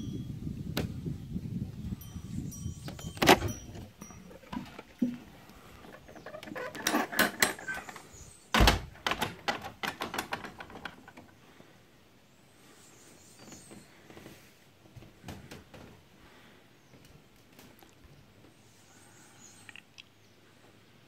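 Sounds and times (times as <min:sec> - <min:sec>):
knocks and clicks on wood: 0:08.6 - 0:11.3.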